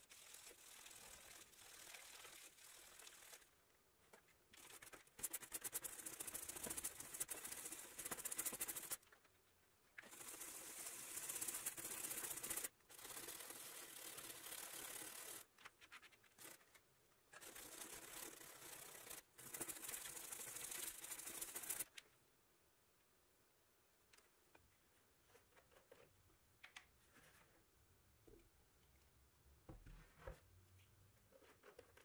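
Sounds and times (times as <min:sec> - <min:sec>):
scrub brush rasping on plastic: 0:04.6 - 0:09.0, 0:10.0 - 0:15.5, 0:17.3 - 0:21.9.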